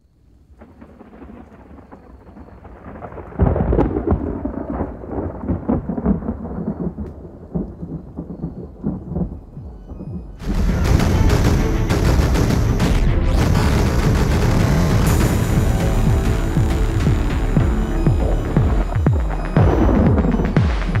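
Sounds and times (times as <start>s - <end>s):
thunder-like rumble with crackling: 0.6s - 21.0s
distorted electronic sound: 9.7s - 21.0s.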